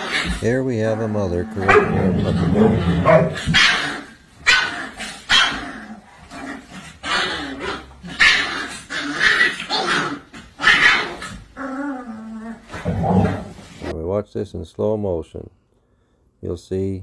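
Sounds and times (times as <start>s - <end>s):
puppy barking and yipping: 2.8s - 5.7s, 6.9s - 11.4s.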